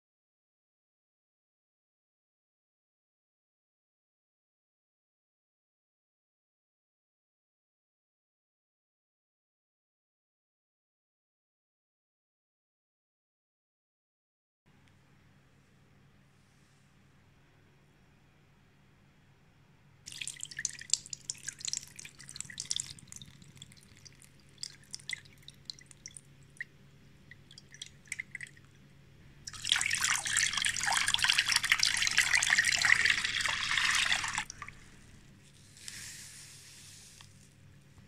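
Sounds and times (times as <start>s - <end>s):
water pouring into metal pot: 20.1s - 26.6s, 27.3s - 28.6s, 29.5s - 35.2s
liquid dripping: 20.1s - 35.5s
powder pouring hiss: 33.0s - 37.6s.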